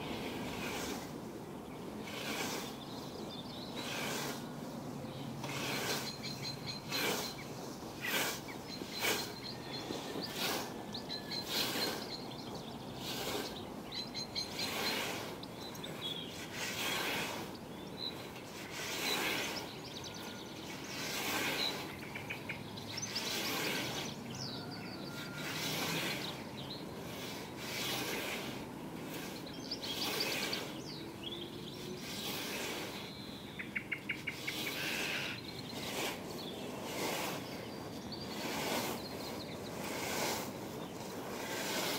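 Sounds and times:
scythe swishing through grass: 0.0 - 1.3, 2.0 - 2.8, 3.8 - 4.5, 5.4 - 12.2, 13.0 - 13.5, 14.5 - 15.4, 16.3 - 17.5, 18.2 - 19.7, 20.8 - 22.3, 23.2 - 24.1, 25.1 - 30.9, 32.0 - 33.0, 34.3 - 37.7, 38.3 - 41.9
birds chirping: 1.5 - 41.5.

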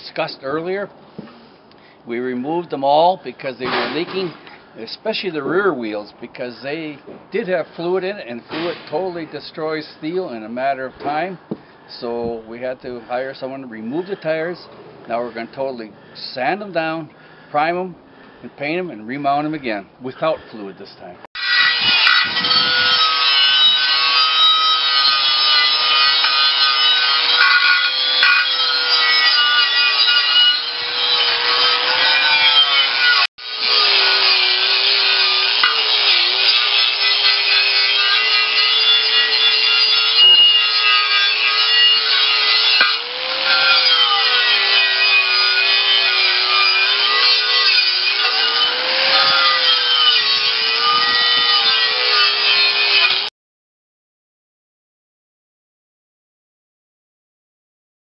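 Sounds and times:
angle grinder grinding metal: 7.8 - 10.0, 21.4 - 53.3.

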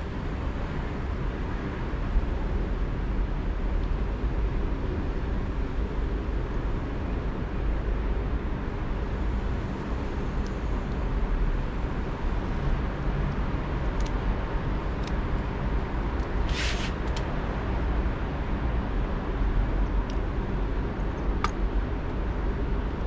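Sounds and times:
outdoor rumble and hiss: 0.0 - 23.0
brief sharp hiss: 16.4 - 17.2.

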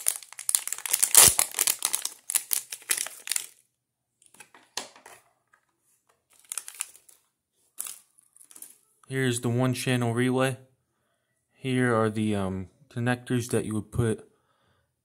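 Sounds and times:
plastic bag crinkling: 0.0 - 3.6, 6.3 - 8.8.

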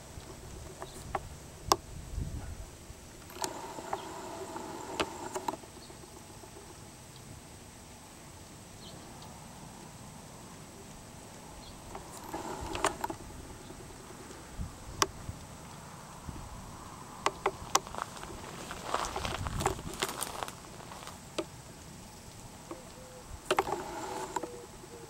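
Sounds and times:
faint background hiss: 0.0 - 25.0
sharp clicks: 3.2 - 7.3, 11.3 - 15.5, 17.2 - 18.2, 22.2 - 24.8
footsteps in dry grass: 17.6 - 21.3.

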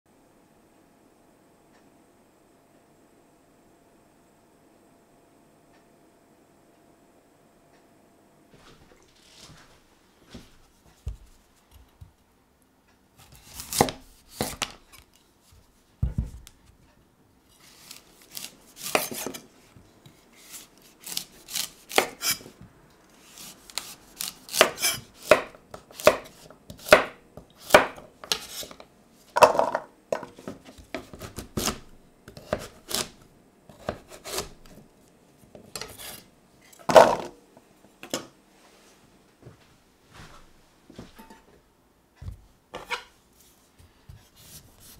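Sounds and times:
knife chopping on wooden board: 13.6 - 14.7, 18.3 - 19.4, 20.5 - 22.4, 23.4 - 28.8, 29.4 - 33.1, 33.7 - 34.6.

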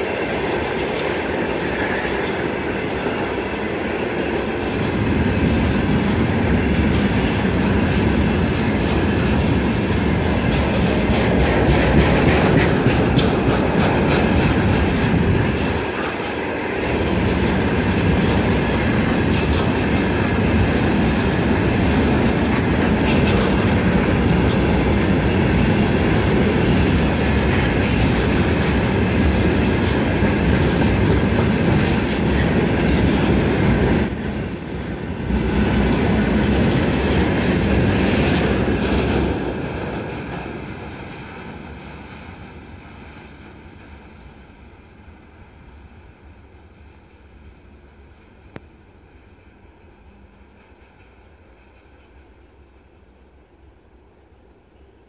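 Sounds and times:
wheels clicking over rail joints: 0.0 - 43.7
train wheels rumbling on rails: 0.0 - 55.0
wheel squeals on rail: 23.1 - 26.5, 31.4 - 33.0, 33.6 - 38.6, 40.0 - 44.4, 46.5 - 48.0, 49.1 - 53.0.

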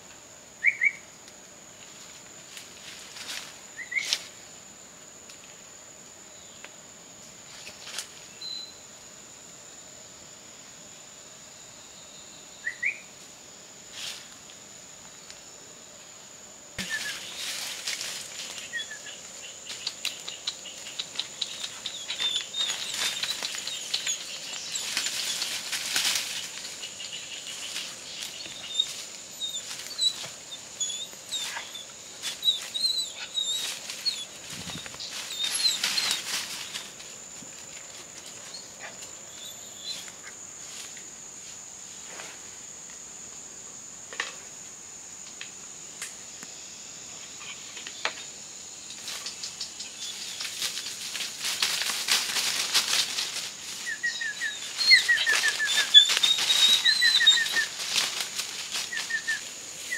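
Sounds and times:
high insect drone: 0.0 - 59.9
footsteps in dry leaf litter: 16.8 - 19.1, 21.6 - 30.4, 33.6 - 38.5, 50.1 - 59.9.

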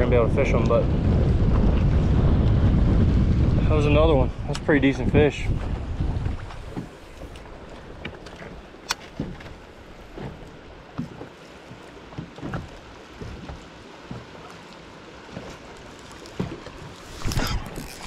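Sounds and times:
water lapping against boat hull: 0.0 - 18.0
wind: 0.0 - 18.0
light knocks and clicks on boat: 4.5 - 18.0.

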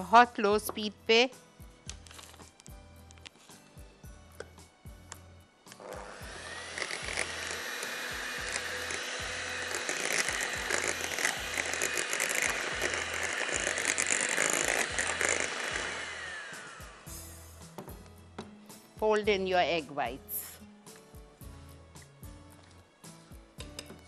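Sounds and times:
electric hand mixer whine: 5.8 - 17.6
beaters whipping cream in bowl: 6.1 - 17.1.

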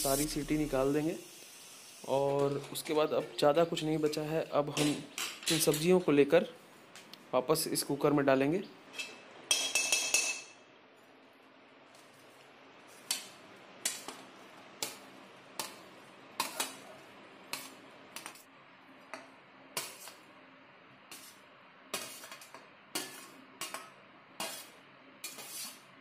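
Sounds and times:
metal spatula scraping steel: 21.1 - 23.8, 24.4 - 25.9.

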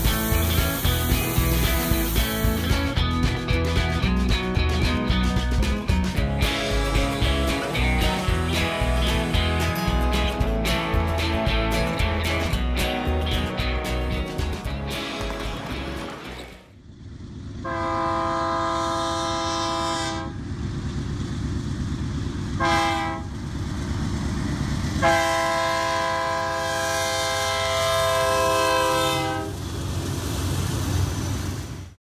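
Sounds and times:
rumble of rolling freight train: 0.0 - 32.0
locomotive horn blasts: 17.6 - 20.4, 22.6 - 23.3, 25.0 - 29.6.

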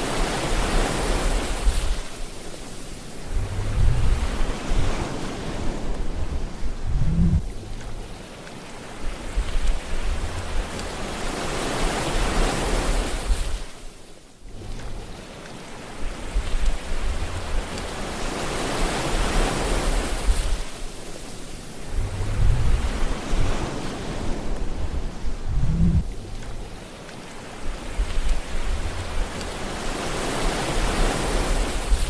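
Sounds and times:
ocean waves washing in: 0.0 - 32.0
low surf rumble: 2.9 - 8.2, 8.9 - 11.4, 14.4 - 32.0.

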